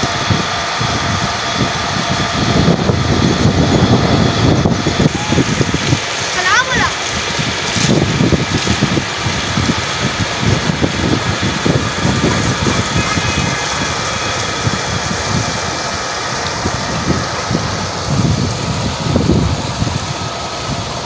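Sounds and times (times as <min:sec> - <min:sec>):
pump engine running: 0:00.0 - 0:21.0
water rushing into tank: 0:00.0 - 0:21.0.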